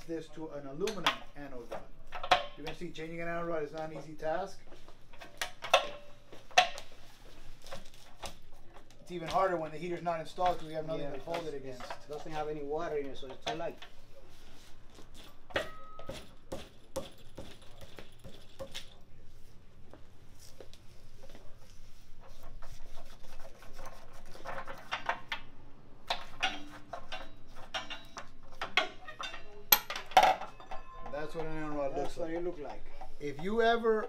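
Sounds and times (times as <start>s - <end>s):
ratchet clicking and clanking: 24.4s - 30.6s.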